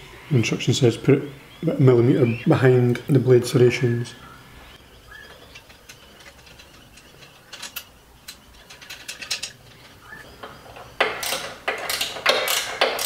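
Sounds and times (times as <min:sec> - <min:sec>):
metal bolts scraping: 0:05.1 - 0:13.0.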